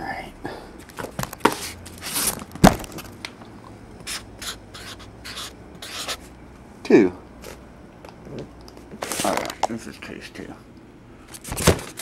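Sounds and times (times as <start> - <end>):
marker pen scratching cardboard: 4.1 - 6.2.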